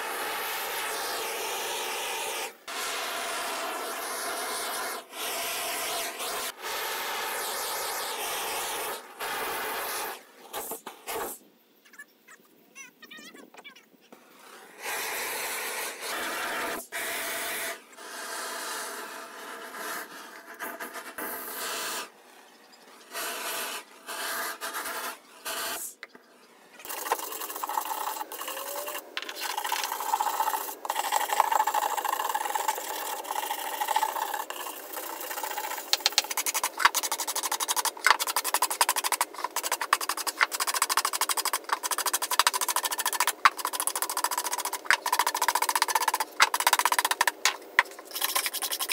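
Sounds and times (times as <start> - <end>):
propane torch hissing: 0.0 - 11.4, 14.5 - 19.2, 26.9 - 48.6
hand brush scrubbing wood: 26.9 - 48.9.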